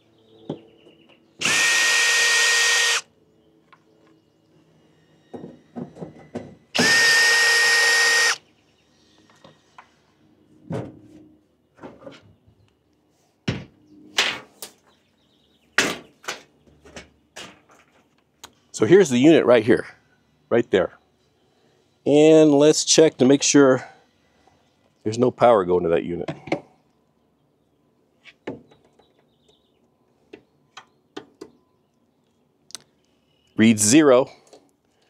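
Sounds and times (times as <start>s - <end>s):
power drill motor whine: 1.4s - 3.1s, 6.2s - 8.4s.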